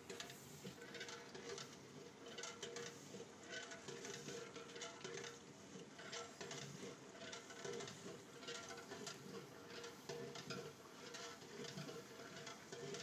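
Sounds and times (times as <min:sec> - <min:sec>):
crackles and spatters: 0:00.0 - 0:13.0
oil and masala sizzling in a pot: 0:00.0 - 0:13.0.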